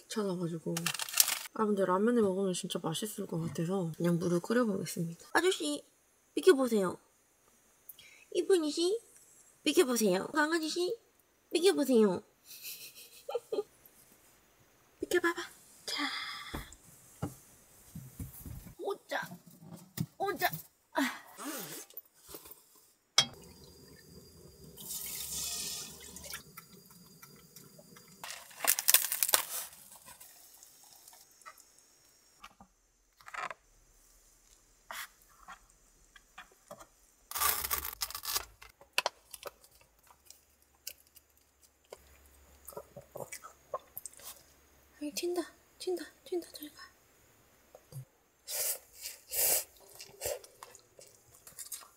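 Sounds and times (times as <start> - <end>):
cup clinking: 23.2 - 24.0
hot water pouring into cup: 23.4 - 32.2.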